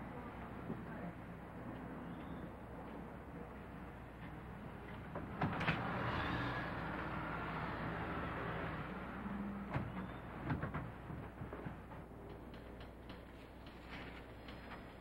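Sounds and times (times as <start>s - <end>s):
street traffic noise: 0.0s - 15.0s.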